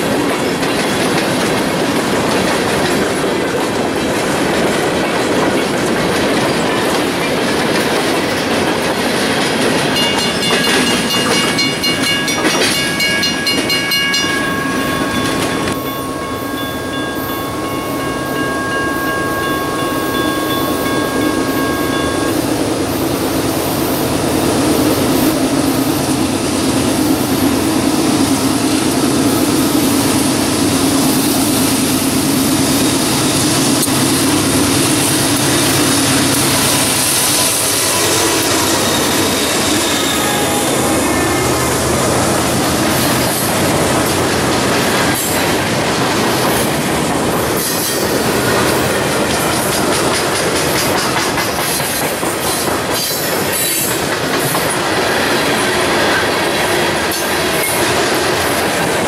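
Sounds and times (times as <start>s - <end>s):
diesel locomotive engine: 0.0s - 59.0s
train wheels on rails: 0.0s - 59.0s
steady high tones: 10.0s - 23.2s.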